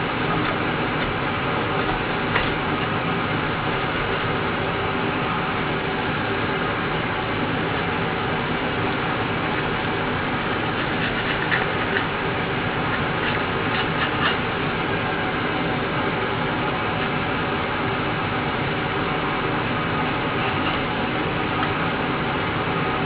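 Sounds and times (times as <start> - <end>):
metal tool scraping: 10.5 - 14.5, 20.3 - 21.8.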